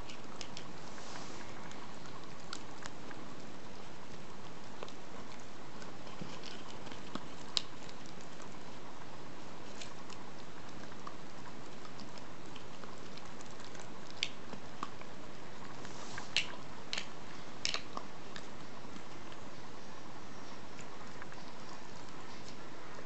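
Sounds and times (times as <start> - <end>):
teeth clicking and snapping: 0.0 - 0.8, 1.6 - 8.7, 9.7 - 19.5
puppy chewing: 0.0 - 23.0.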